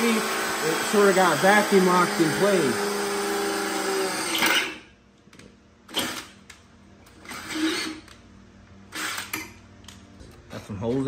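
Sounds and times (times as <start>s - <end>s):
cordless drill whining: 0.0s - 4.8s, 5.9s - 6.4s, 7.1s - 8.2s, 8.9s - 9.5s.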